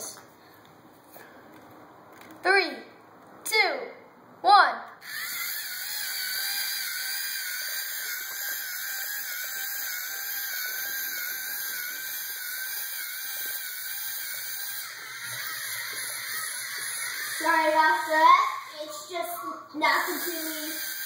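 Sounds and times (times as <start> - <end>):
servo motors whining: 5.0 - 18.2.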